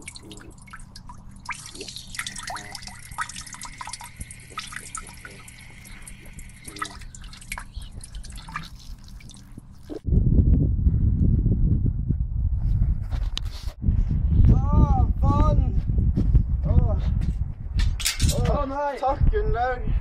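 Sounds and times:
urine trickling onto glass bottle: 0.0s - 10.0s
low rumble: 9.6s - 13.2s.

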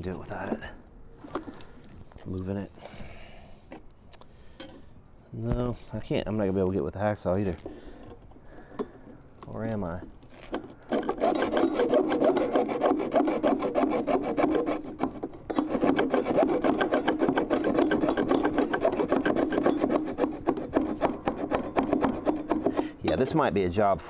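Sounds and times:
hacksaw sawing: 10.6s - 23.6s.

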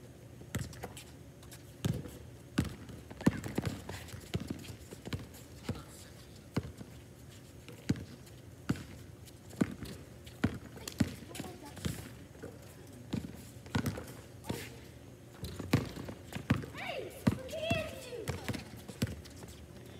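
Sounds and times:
basketball bouncing on hard court: 1.8s - 5.3s, 7.9s - 8.1s, 8.7s - 9.0s, 9.6s - 12.2s, 13.1s - 14.7s, 15.4s - 19.2s.

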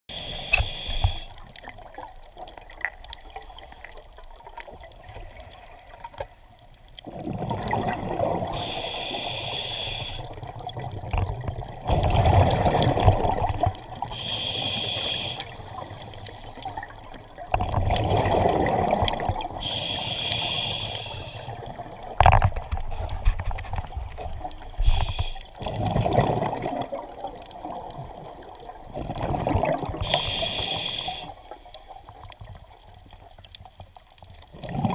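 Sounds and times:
diver breathing through regulator: 0.1s - 1.4s, 8.4s - 10.4s, 14.0s - 16.7s, 19.6s - 21.7s, 24.7s - 25.6s, 30.0s - 32.0s
hissing inhales: 0.1s - 1.4s, 8.5s - 10.4s, 14.1s - 16.6s, 19.6s - 21.6s, 24.8s - 25.6s, 30.0s - 31.8s
bubbling exhaled air: 7.0s - 31.4s, 34.5s - 34.9s.

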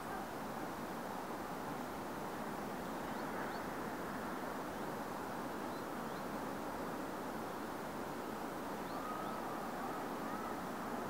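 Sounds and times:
outdoor background noise: 0.0s - 11.0s
faint bird chirps: 2.7s - 3.8s, 5.6s - 11.0s.

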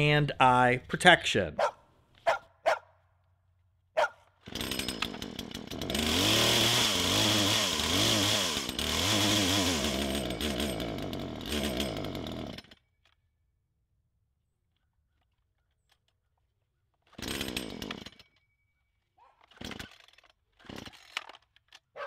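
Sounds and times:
chainsaw engine revving: 4.4s - 12.8s, 17.1s - 18.3s, 19.4s - 21.4s.

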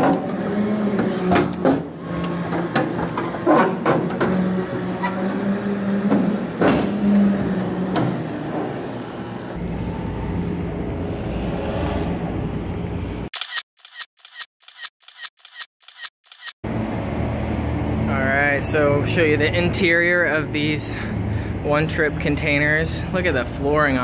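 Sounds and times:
metal clanks and knocks: 0.0s - 5.2s
sharp clicks: 13.4s - 16.6s.

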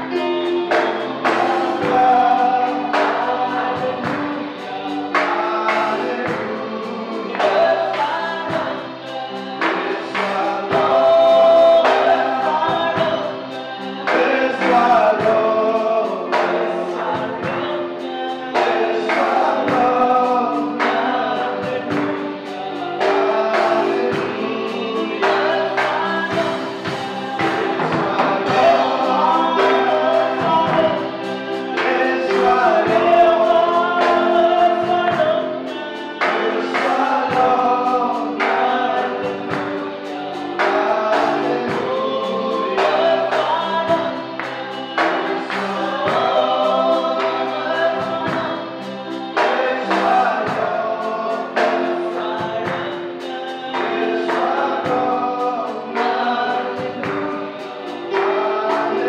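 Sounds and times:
drum kit: 0.0s - 59.0s
keyboard chords: 0.0s - 59.0s
voices singing together: 0.0s - 59.0s.

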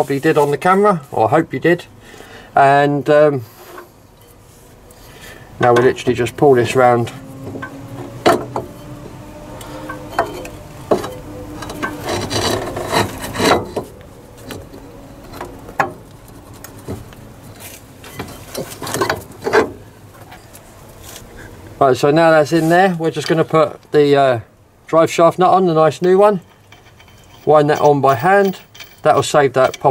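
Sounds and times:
metal parts rubbing and scraping: 3.5s - 19.7s, 25.9s - 29.9s
metal knocks and clicks: 26.1s - 29.9s.

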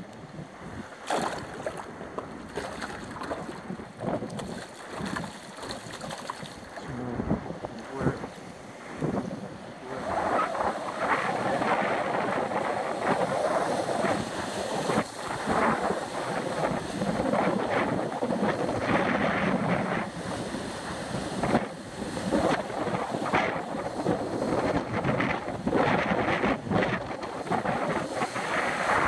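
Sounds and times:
wind buffeting microphone: 0.0s - 29.0s
surf breaking on rocks: 0.7s - 7.4s.

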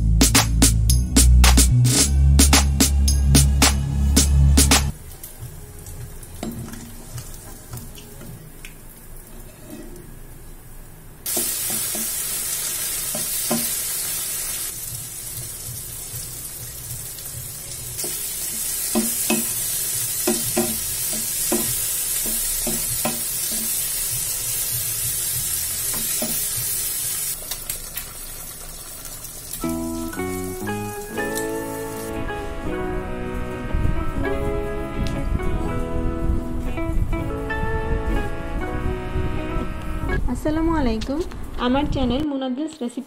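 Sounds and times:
food sizzling in oil: 11.3s - 32.2s
spatula knocking against pan: 20.2s - 23.7s.

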